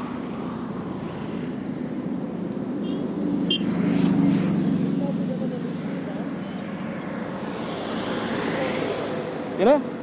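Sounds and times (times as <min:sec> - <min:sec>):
steady low traffic hum: 0:00.0 - 0:10.0
vehicle passing: 0:03.1 - 0:10.0.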